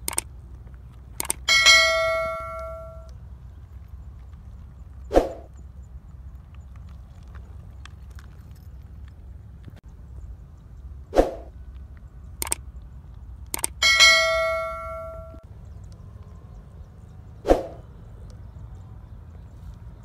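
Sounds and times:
sharp clicks: 0.0 - 3.2, 12.4 - 16.0
notification bell ding: 1.5 - 3.1, 13.8 - 15.4.

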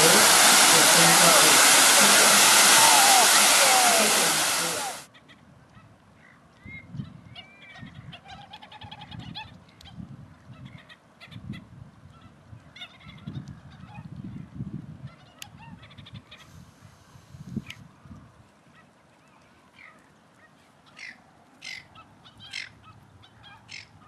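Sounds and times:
goose honking: 0.0 - 5.0.

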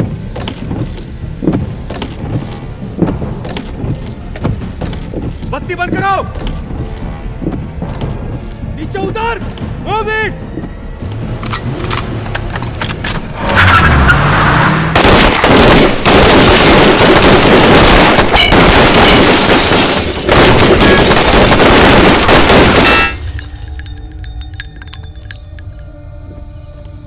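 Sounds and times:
car engine revving: 13.2 - 15.0
dense gunfire volley: 14.9 - 23.2.

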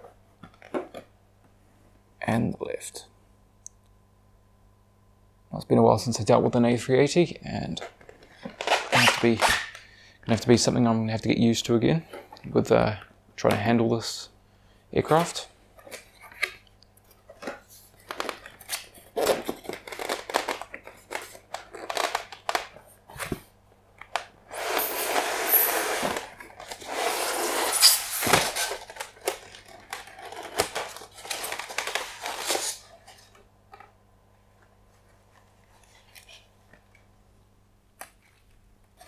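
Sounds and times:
loud rustling of wrapping: 24.6 - 33.4.

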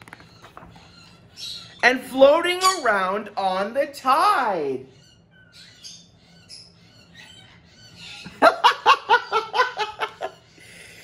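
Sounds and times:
bird squawking: 0.1 - 3.1, 4.8 - 8.4.

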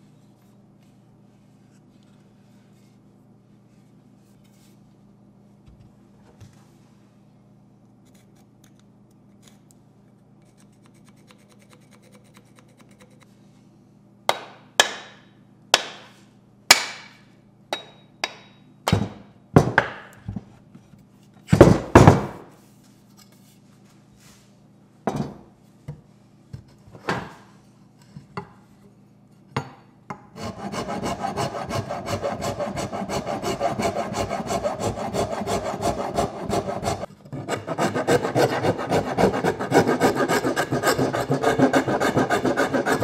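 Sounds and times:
parts set down on wooden bench: 25.1 - 25.5
pencil scratching on wood: 30.4 - 43.0.

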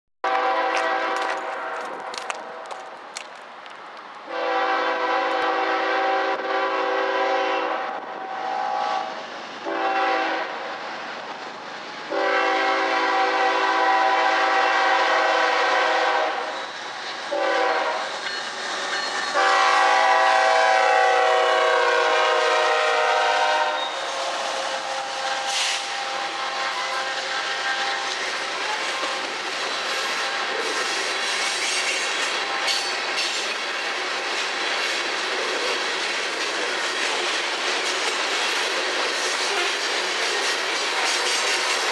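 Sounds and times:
locomotive horn blasts: 0.2 - 2.2, 4.3 - 10.5, 12.1 - 16.4, 17.3 - 18.0, 19.3 - 27.9
rail cars rumbling and clattering: 0.2 - 41.9.

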